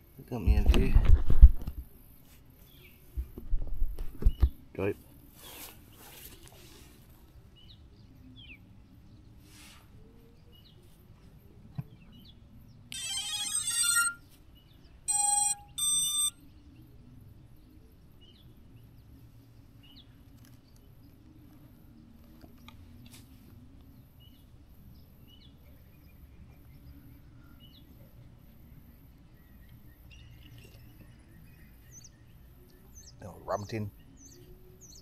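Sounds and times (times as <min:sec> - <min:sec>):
electronic startup tones: 0:12.9 - 0:14.2, 0:15.1 - 0:16.4
electronic beeps: 0:12.9 - 0:14.3, 0:15.1 - 0:16.4.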